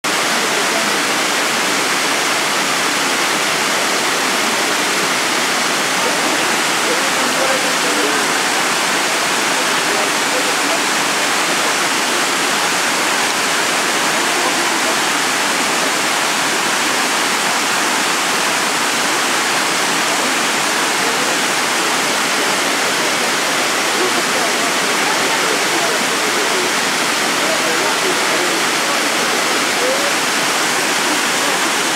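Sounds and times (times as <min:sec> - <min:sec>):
water rushing over cascade: 0:00.1 - 0:31.9.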